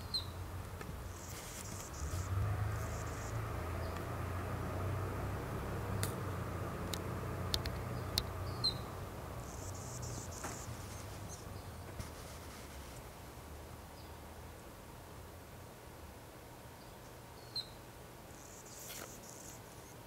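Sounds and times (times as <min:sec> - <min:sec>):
insects trilling: 0:01.1 - 0:03.9, 0:08.5 - 0:11.5, 0:18.3 - 0:20.0
sharp ticks: 0:06.9 - 0:08.3.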